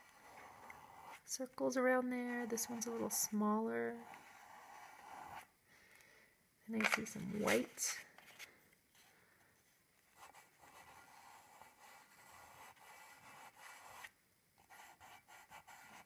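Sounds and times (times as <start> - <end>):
pastel stick scratching on paper: 0.0 - 1.3, 3.9 - 5.5, 10.2 - 16.0.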